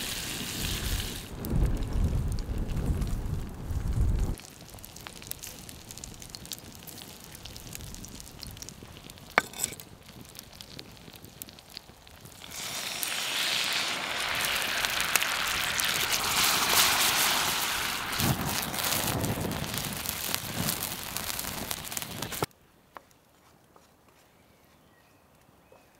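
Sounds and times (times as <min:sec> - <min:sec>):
apples sizzling in frying pan: 0:00.0 - 0:22.5
wood fire crackling: 0:00.0 - 0:23.4.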